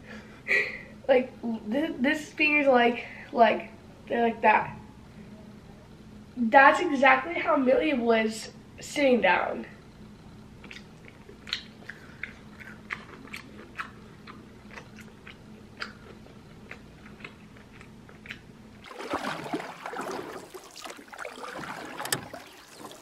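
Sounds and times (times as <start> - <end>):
chewing crisp cucumber: 10.6 - 18.5
wet mouth clicks: 10.6 - 18.5.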